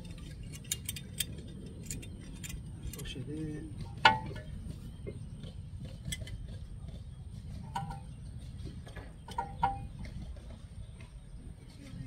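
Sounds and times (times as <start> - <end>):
metal tools clinking: 0.0 - 4.6
low background rumble: 0.0 - 12.0.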